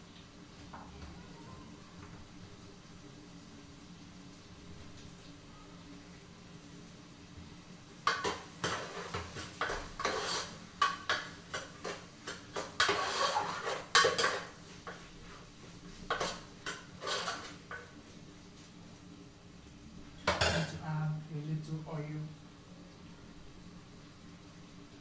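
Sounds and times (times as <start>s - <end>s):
metal spoon scraping a pot: 8.1s - 15.0s, 16.1s - 17.8s.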